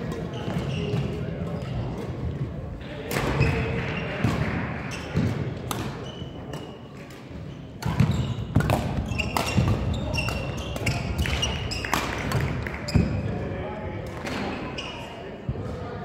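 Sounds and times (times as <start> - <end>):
shoes squeaking on floor: 0.2 - 2.0, 5.9 - 12.0, 14.4 - 15.3
rackets striking shuttlecock: 5.1 - 13.2.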